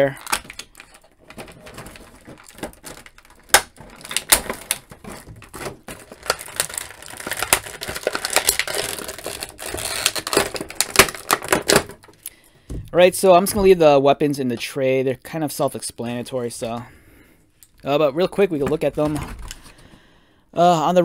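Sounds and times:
plastic tray clicking and crackling: 0.0 - 12.3
plastic wrapping crinkling: 0.0 - 12.9.

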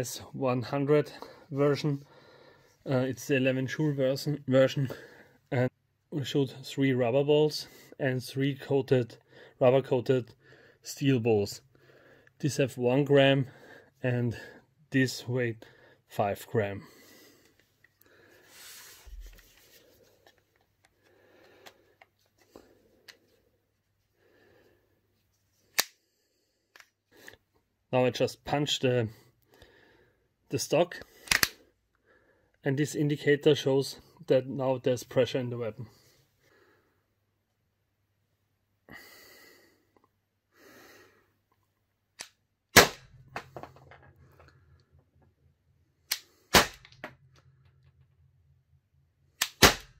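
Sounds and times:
soft breaths: 1.1 - 2.9, 4.8 - 5.5, 10.3 - 10.9, 11.6 - 12.4, 13.4 - 14.8, 16.8 - 27.7, 29.1 - 30.3, 35.8 - 37.2, 38.8 - 41.8
gun shot crack: 42.8 - 43.2, 46.5 - 46.9, 49.4 - 49.9.

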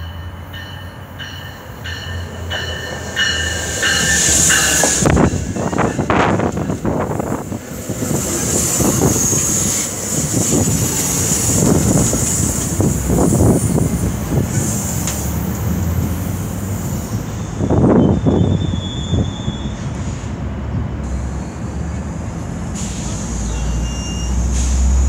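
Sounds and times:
train wheels rumbling on rails: 0.0 - 25.0
high wheel squeal: 16.7 - 20.3, 22.8 - 25.0.

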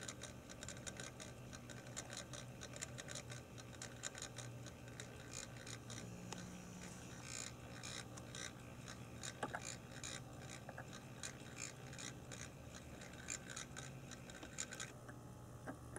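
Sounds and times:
small electric motor whirring: 0.0 - 15.0
model train wheels clicking: 7.1 - 14.9.

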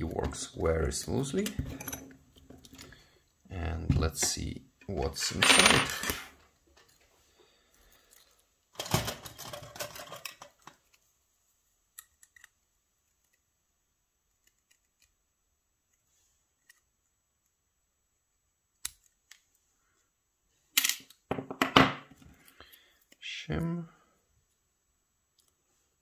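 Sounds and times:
small metal clicks: 12.0 - 12.6.

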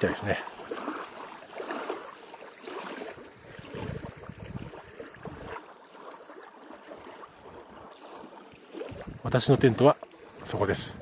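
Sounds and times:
small waves lapping on gravel: 0.0 - 11.0
wind buffeting microphone: 3.2 - 5.7, 8.8 - 11.0.

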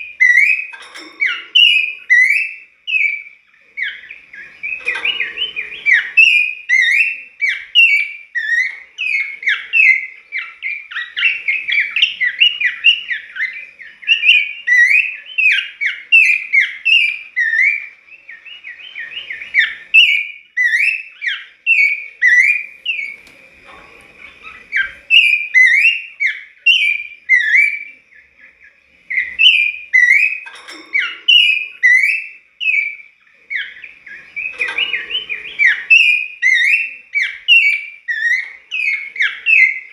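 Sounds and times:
bird singing whistled notes: 0.0 - 39.9.

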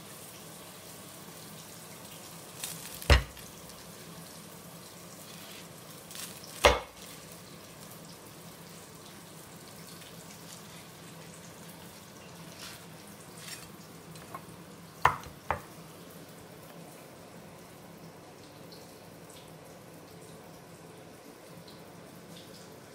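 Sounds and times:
cleaver chopping fried spring rolls: 2.9 - 3.5, 6.4 - 7.2, 15.0 - 15.6
cleaver knocking on plastic board: 6.7 - 6.9, 15.1 - 15.6.

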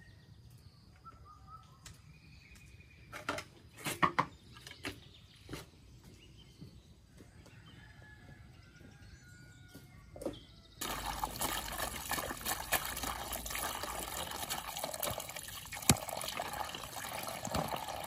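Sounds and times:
faint birds chirping: 0.0 - 11.8
plastic basins knocking and clattering: 10.3 - 18.0.

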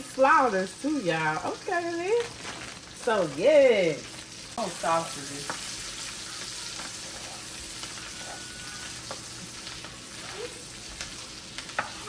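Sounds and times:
sausage sizzling in a frying pan: 0.0 - 12.0
spatula scraping a pan: 4.9 - 12.0.

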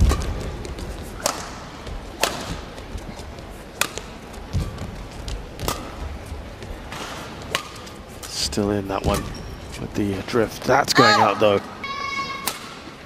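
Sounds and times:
rackets hitting shuttlecock: 0.0 - 2.8, 3.7 - 4.9, 5.6 - 6.1, 6.9 - 8.4, 12.2 - 12.9
low hall rumble: 0.0 - 13.0.

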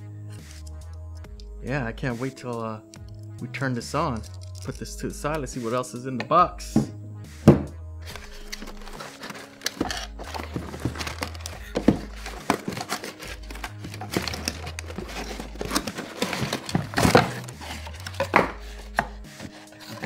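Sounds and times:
cardboard packaging rustling: 8.0 - 20.0.

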